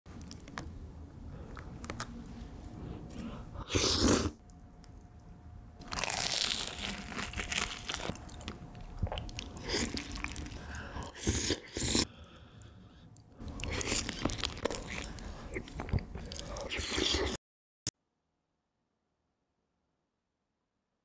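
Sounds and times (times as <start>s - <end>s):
biting and chewing food: 5.8s - 12.0s, 13.2s - 17.4s.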